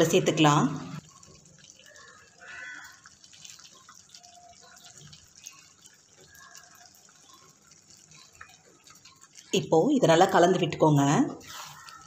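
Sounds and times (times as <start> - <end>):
soft drips and plops: 0.0 - 12.0
wet squelch of chicken: 1.6 - 9.3, 11.4 - 12.0.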